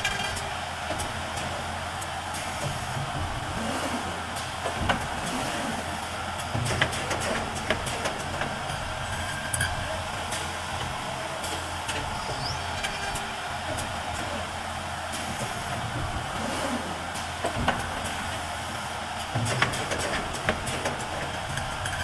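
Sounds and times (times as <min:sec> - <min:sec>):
steady machine hiss: 0:00.0 - 0:22.0
machine clicks and knocks: 0:06.4 - 0:09.8, 0:17.4 - 0:18.4, 0:19.2 - 0:22.0.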